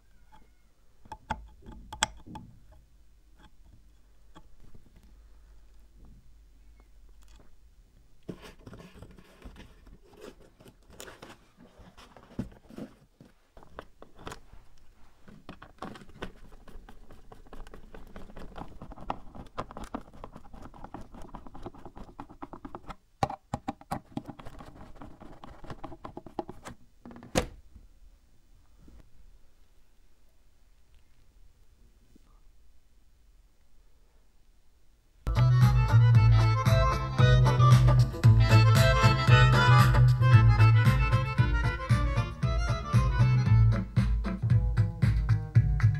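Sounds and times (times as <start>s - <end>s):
sharp clicks and taps: 1.0s - 2.5s.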